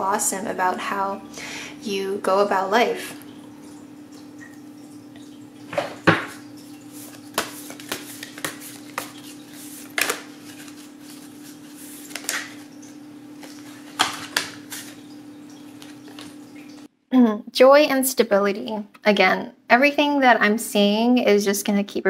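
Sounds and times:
cards clicking and tapping: 7.3s - 11.3s, 12.0s - 12.6s, 13.4s - 15.0s.

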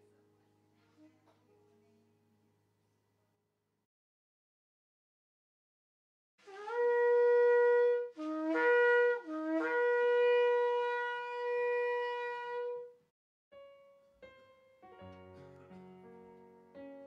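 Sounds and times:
soft keyboard notes: 13.6s - 17.0s.

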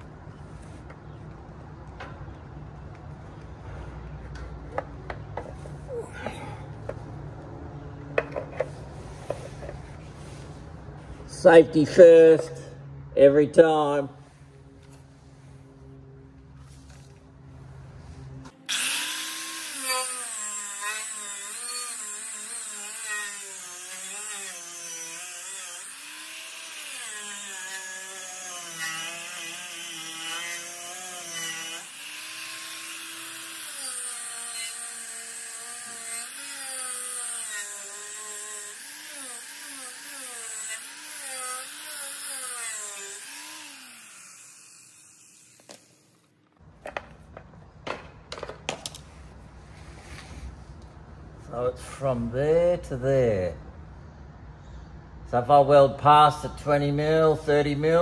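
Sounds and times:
angle grinder motor whine: 18.4s - 46.3s.

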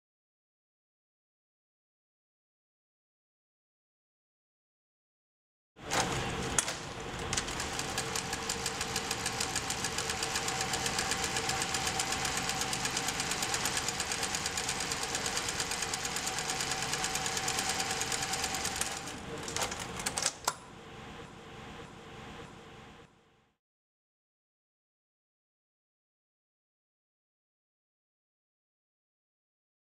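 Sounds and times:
industrial sewing machine sewing: 5.8s - 20.3s
faint steady machine sound: 7.1s - 23.5s.

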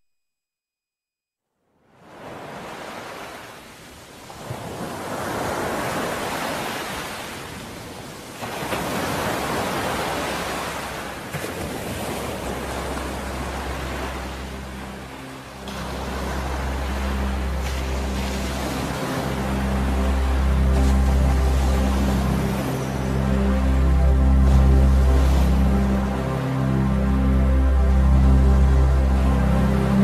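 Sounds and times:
sea waves washing ashore: 1.9s - 30.0s
low engine drone: 12.1s - 30.0s.

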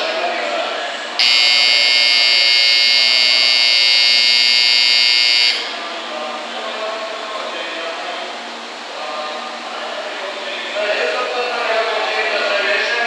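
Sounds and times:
electronic departure bell buzzing: 1.2s - 5.8s.

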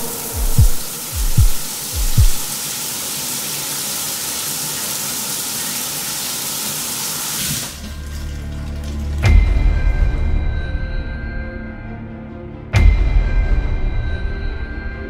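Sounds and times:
low dark music drone: 0.0s - 2.5s, 7.9s - 15.0s
running water hiss: 0.0s - 8.9s.

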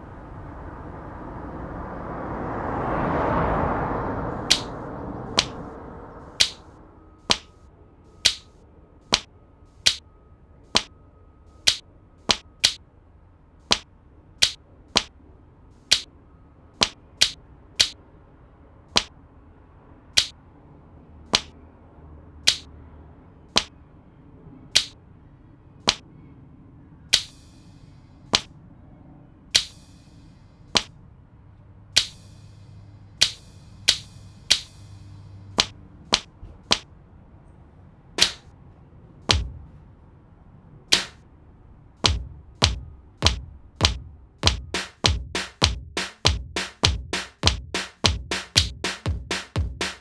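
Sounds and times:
sharp snapping clicks: 4.5s - 4.7s, 8.3s - 8.5s, 11.7s - 12.8s, 14.4s - 15.1s, 16.8s - 18.0s, 22.5s - 22.7s, 24.8s - 25.0s, 32.0s - 32.2s, 35.6s - 36.8s, 38.2s - 38.4s.

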